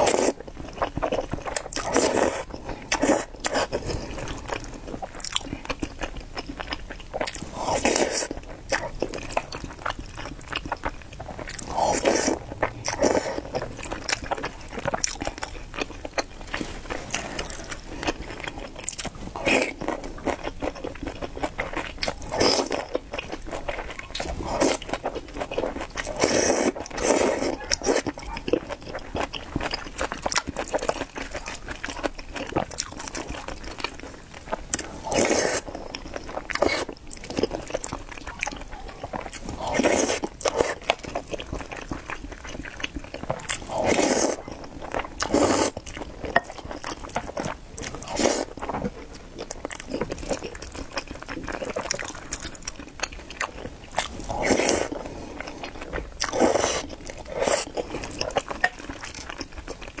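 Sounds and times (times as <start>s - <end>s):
wet chewing: 0.0s - 60.0s
noodles slurped: 23.6s - 29.0s, 34.7s - 38.0s, 39.2s - 41.6s, 42.5s - 48.8s, 53.9s - 59.2s.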